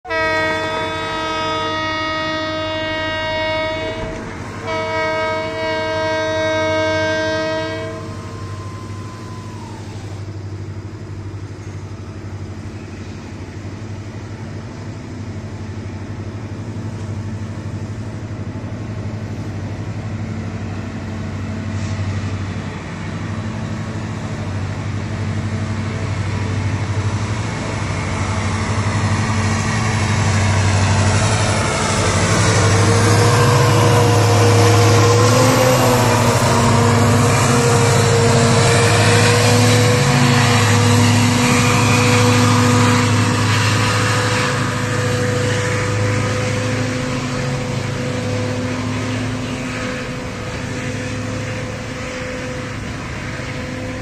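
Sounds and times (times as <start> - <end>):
locomotive air horn blasts: 0.1 - 10.2, 32.2 - 54.0
diesel engine rumbling: 2.6 - 54.0.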